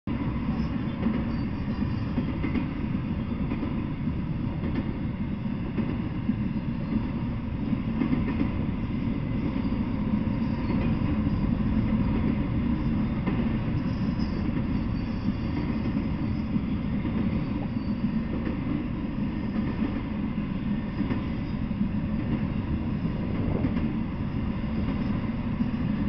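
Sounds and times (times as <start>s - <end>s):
freight train wheels rumbling on rail: 0.1s - 26.0s.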